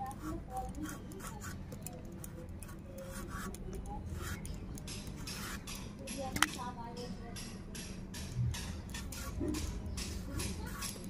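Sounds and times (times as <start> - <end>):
potato peeling scraping strokes: 2.6 - 4.5.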